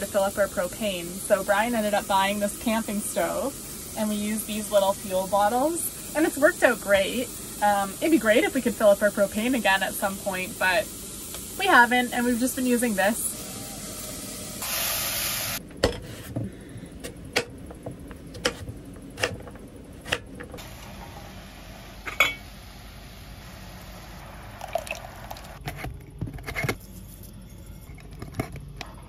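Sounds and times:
short hiss: 14.1 - 15.6.

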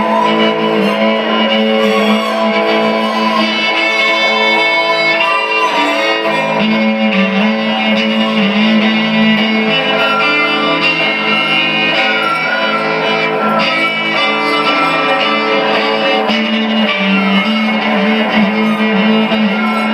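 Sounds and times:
guitar accompaniment: 0.0 - 19.9
violin bowed with vibrato: 0.0 - 19.9.

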